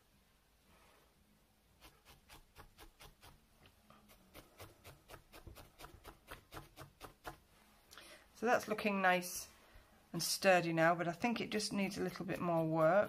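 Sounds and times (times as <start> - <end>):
felting needle poking wool: 1.7 - 7.5, 11.1 - 13.0.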